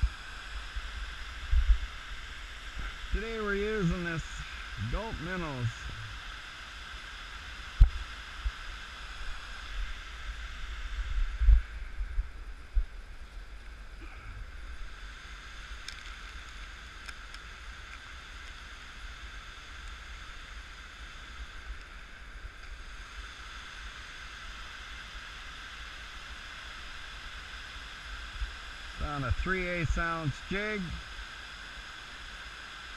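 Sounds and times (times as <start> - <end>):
wind rumble on microphone: 0.0 - 3.4, 4.0 - 6.4, 7.6 - 13.8
river flowing: 0.0 - 32.9.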